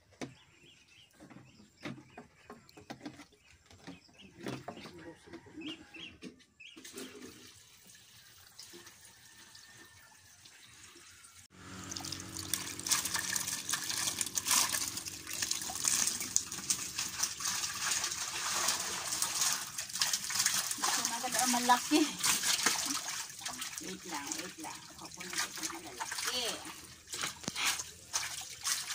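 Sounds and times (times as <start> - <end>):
water splashing and dripping: 6.8 - 28.9
fish thrashing in water: 11.6 - 28.9.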